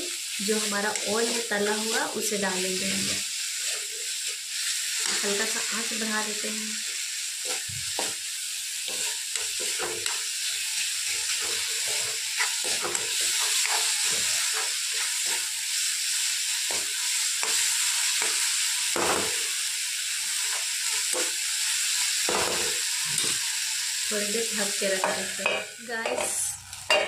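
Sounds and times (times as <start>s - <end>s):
tomatoes sizzling in oil: 0.0s - 27.0s
spoon scraping and knocking pan: 7.4s - 8.2s, 8.8s - 10.3s, 11.0s - 15.6s, 16.6s - 19.4s, 22.3s - 23.4s, 25.0s - 27.0s.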